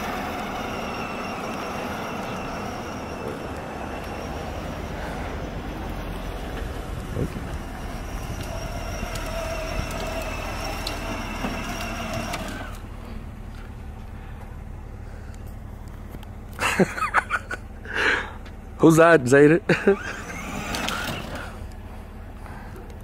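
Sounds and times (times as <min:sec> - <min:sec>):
electric motor whining: 0:00.0 - 0:13.3, 0:19.8 - 0:21.8.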